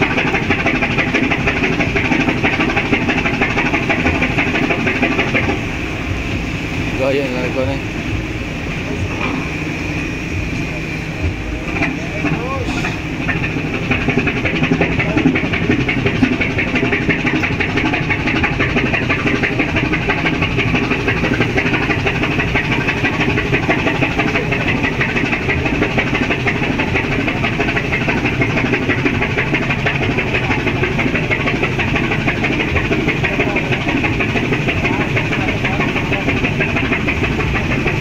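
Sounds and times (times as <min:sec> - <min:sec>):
ship diesel engine clattering: 0:00.0 - 0:38.0.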